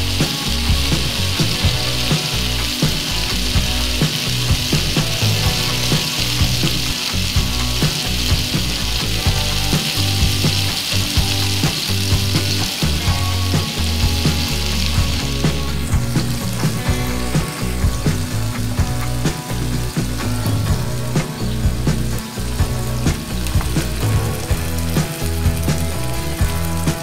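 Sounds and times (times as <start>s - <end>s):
background music: 0.0s - 27.0s
tomatoes sizzling in oil: 0.0s - 27.0s.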